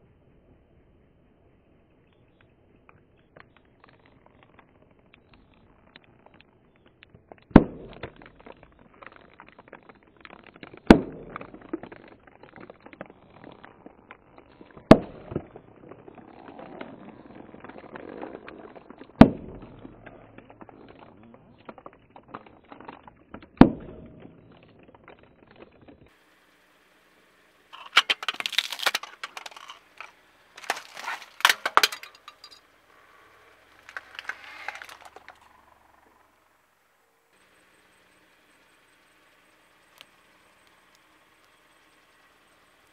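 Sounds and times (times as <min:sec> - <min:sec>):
small crackles: 0:01.0 - 0:42.9
plastic bottles bursting: 0:03.4 - 0:26.2, 0:27.7 - 0:35.8
tyre crushing plastic toy: 0:27.8 - 0:32.6, 0:33.5 - 0:35.5.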